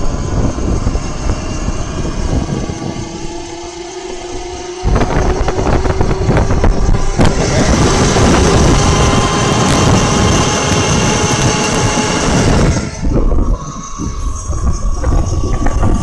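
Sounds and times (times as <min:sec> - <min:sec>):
faint electric motor whine: 0:00.0 - 0:16.0
loud rushing wind: 0:00.0 - 0:16.0
microphone handling noise: 0:04.8 - 0:16.0.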